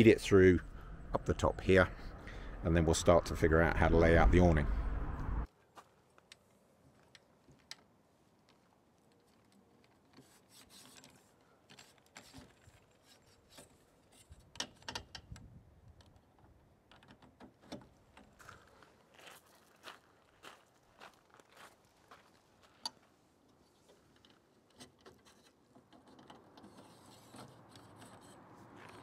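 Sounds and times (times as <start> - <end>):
metal pole clicks and rubbing: 23.8 - 29.0.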